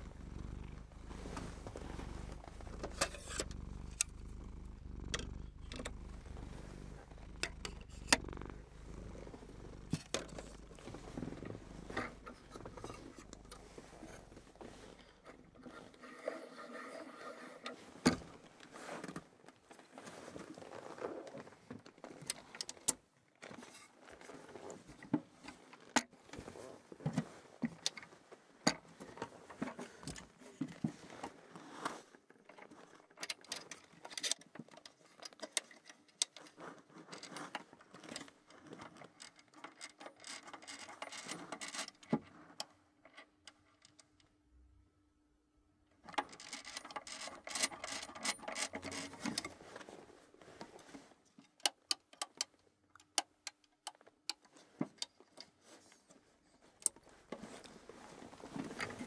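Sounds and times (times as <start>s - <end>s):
faint steady hum: 0.0s - 15.7s.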